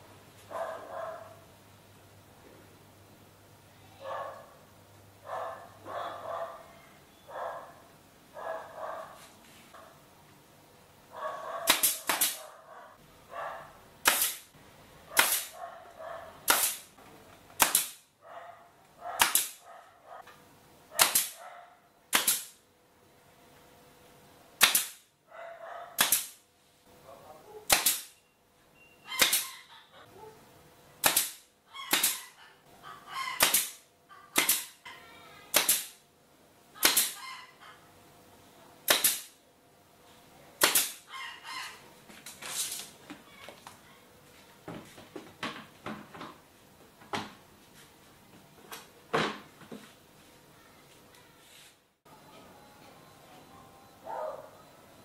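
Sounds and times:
nail gun firing into wood: 0:11.7 - 0:12.4, 0:14.0 - 0:14.5, 0:15.2 - 0:15.5, 0:16.4 - 0:16.9, 0:17.6 - 0:18.1, 0:19.2 - 0:19.6, 0:21.0 - 0:21.4, 0:22.1 - 0:22.6, 0:24.6 - 0:25.1, 0:26.0 - 0:26.4, 0:27.7 - 0:28.2, 0:29.2 - 0:29.5, 0:31.0 - 0:32.2, 0:33.4 - 0:33.8, 0:34.4 - 0:34.8, 0:35.5 - 0:36.0, 0:36.8 - 0:37.2, 0:38.9 - 0:39.4, 0:40.6 - 0:41.1.

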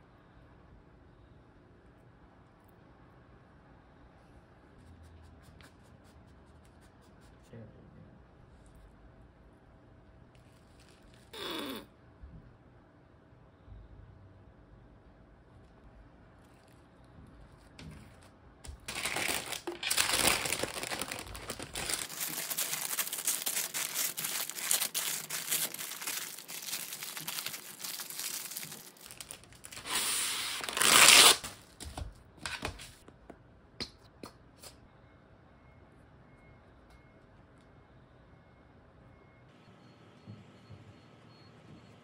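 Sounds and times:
paper crinkling and rustling: 0:10.3 - 0:11.3, 0:16.4 - 0:33.0.

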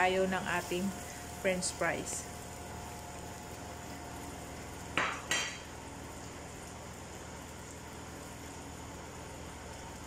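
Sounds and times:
steady background hum: 0:00.0 - 0:10.0
utensils clinking on a pan: 0:05.0 - 0:05.7.

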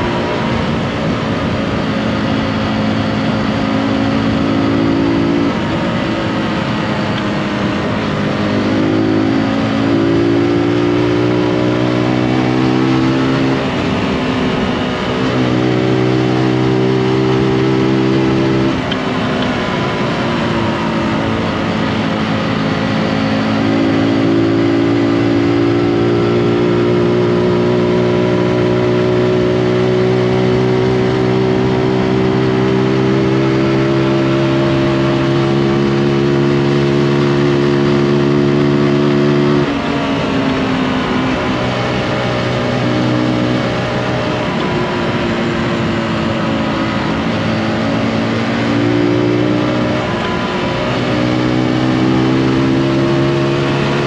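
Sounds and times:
motorcycle engine running: 0:00.0 - 0:54.0
road noise: 0:00.0 - 0:54.0.

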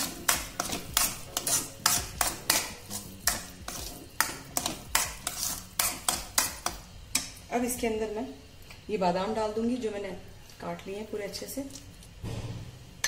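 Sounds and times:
metal spoon scraping steel pan: 0:00.0 - 0:06.7.

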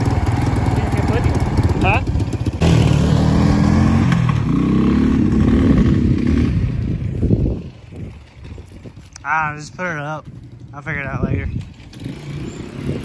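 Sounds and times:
quad bike engine revving: 0:00.0 - 0:07.6, 0:11.1 - 0:13.0.

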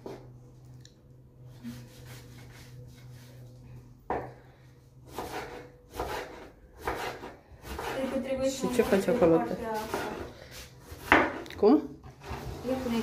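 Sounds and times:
knife slicing onion on board: 0:05.1 - 0:09.2.

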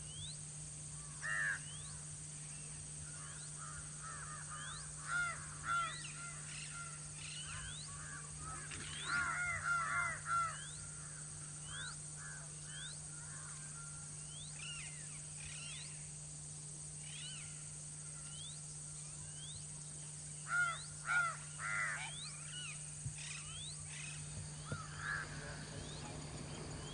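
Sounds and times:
crows cawing: 0:01.0 - 0:01.7, 0:03.0 - 0:14.1, 0:20.4 - 0:22.2, 0:24.6 - 0:26.0.

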